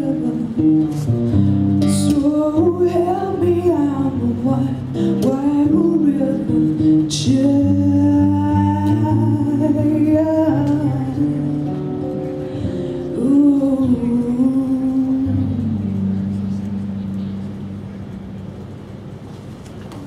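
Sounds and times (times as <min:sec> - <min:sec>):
woman singing: 0:00.0 - 0:01.1, 0:01.8 - 0:12.0, 0:13.0 - 0:16.8
acoustic guitar chords: 0:00.0 - 0:19.1.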